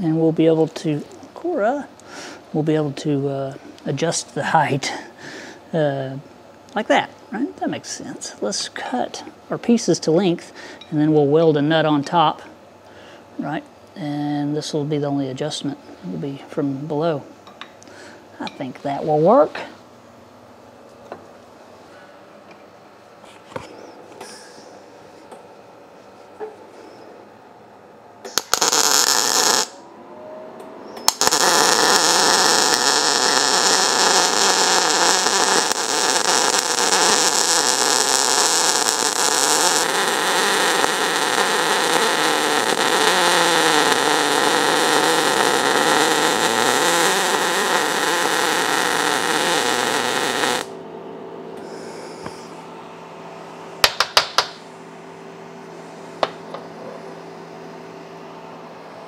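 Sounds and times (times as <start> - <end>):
welder arc crackling: 28.3 - 29.8, 31.1 - 50.8.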